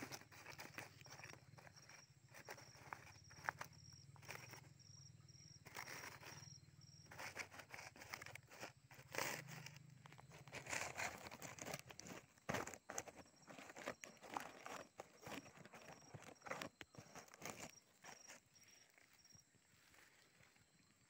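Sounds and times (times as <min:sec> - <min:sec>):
dry leaves and rope rustling: 0:00.0 - 0:04.6, 0:07.0 - 0:19.1.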